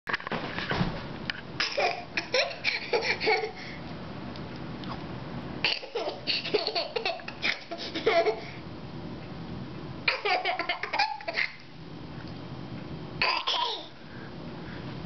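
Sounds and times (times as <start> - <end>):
baby laughing: 1.6 - 3.6, 5.7 - 8.6, 10.1 - 11.6.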